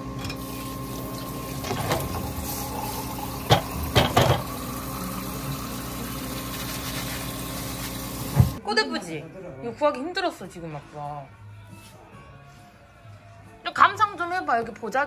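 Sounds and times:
dishes clinking: 0:00.2 - 0:00.5, 0:03.4 - 0:04.6
water running into steel sink: 0:00.2 - 0:08.6.

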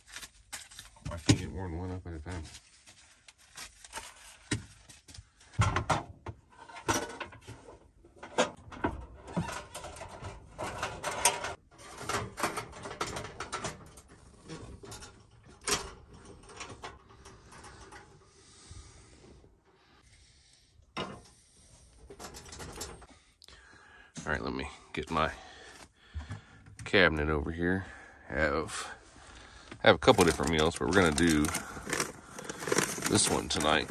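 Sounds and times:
camp stove knocks and clanks: 0:08.2 - 0:17.1.

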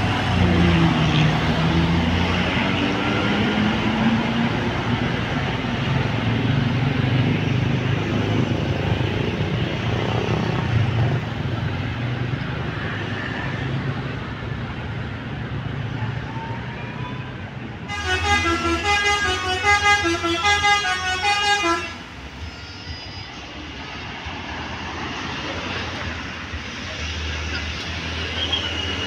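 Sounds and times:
bus diesel engine running: 0:00.0 - 0:12.5, 0:17.2 - 0:29.0
multi-note bus horn tune: 0:17.8 - 0:22.1.

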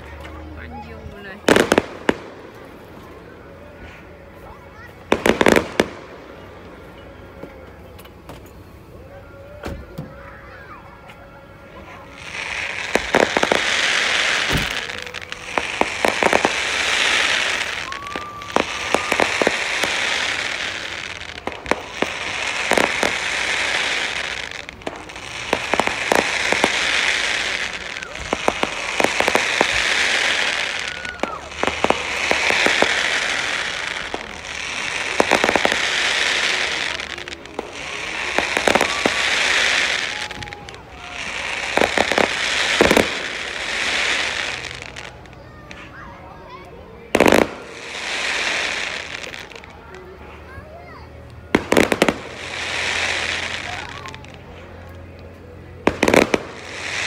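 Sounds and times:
fireworks bangs: 0:00.0 - 0:07.6, 0:12.0 - 0:46.0, 0:47.0 - 0:49.8, 0:51.4 - 0:54.8, 0:55.7 - 0:57.0
fireworks crackle: 0:00.0 - 0:57.0.

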